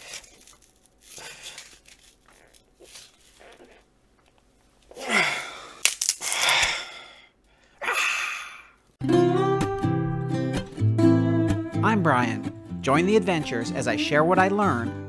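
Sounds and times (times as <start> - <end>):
fiberglass strip crackling: 0.0 - 3.8
man straining and groaning: 4.9 - 8.8
sharp cracks of bending strip: 5.8 - 6.8.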